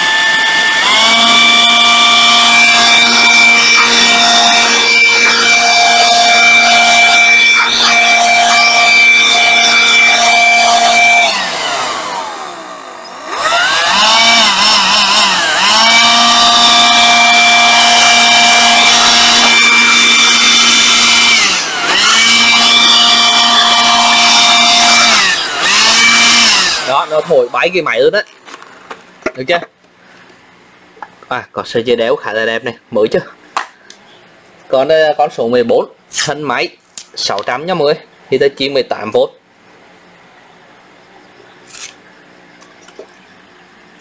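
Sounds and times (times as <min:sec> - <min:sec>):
cordless blower whining: 0:00.0 - 0:27.7.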